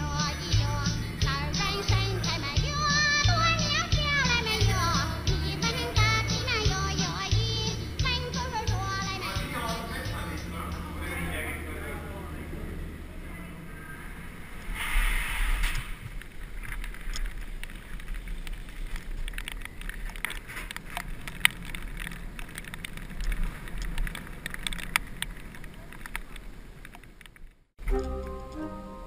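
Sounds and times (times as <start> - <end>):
burst of hiss: 14.6 - 16.0
bike rolling over hard floors: 15.8 - 27.7
bike clicks and rattles: 16.0 - 27.7.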